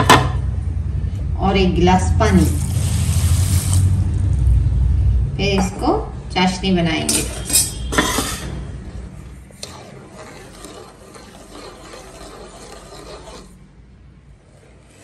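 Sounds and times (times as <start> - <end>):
spoon stirring sugar in a pot: 2.3 - 4.0, 7.2 - 13.6.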